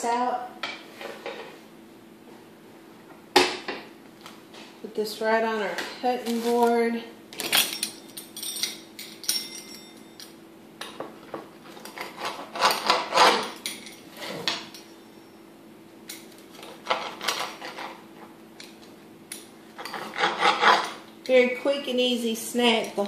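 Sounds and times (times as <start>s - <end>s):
pizza cutter scraping on glass: 11.8s - 13.6s, 19.8s - 21.0s.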